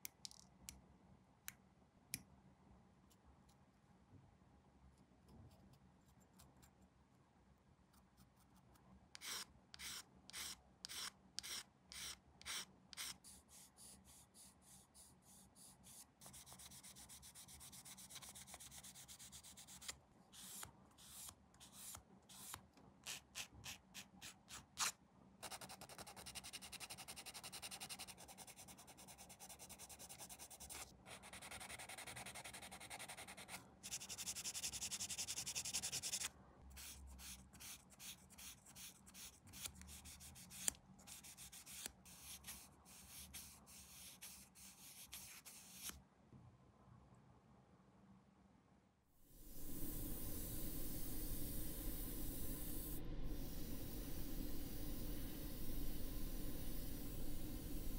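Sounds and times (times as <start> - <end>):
sanding plastic part: 9.2 - 46.0.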